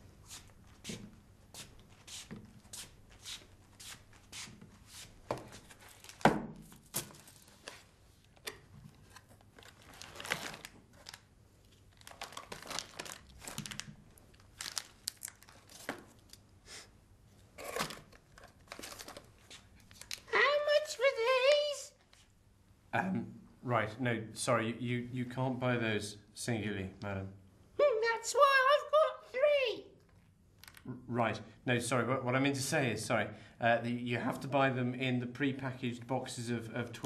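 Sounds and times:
wrappers crinkling: 0:05.6 - 0:06.3, 0:09.0 - 0:16.4, 0:17.6 - 0:20.3.

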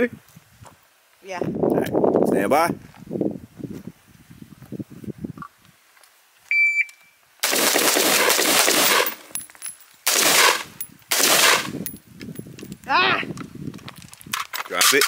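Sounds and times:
shot timer beep: 0:06.5 - 0:07.1
rapid rifle fire: 0:07.4 - 0:09.3, 0:10.1 - 0:11.8.

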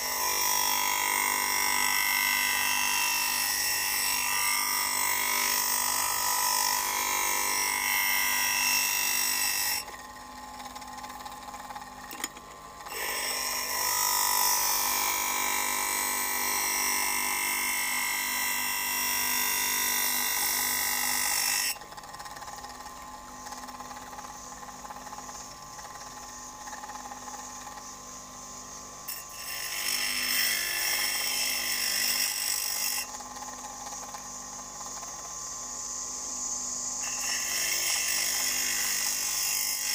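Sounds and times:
blade grinding on grinding wheel: 0:00.0 - 0:27.9, 0:29.0 - 0:35.4, 0:37.0 - 0:39.9
grinder motor running: 0:00.0 - 0:27.9.

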